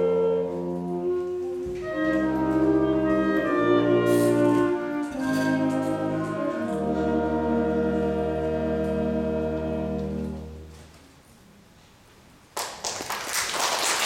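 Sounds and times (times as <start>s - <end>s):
wind band holding a chord: 0.0s - 10.9s
audience applause: 12.6s - 14.0s.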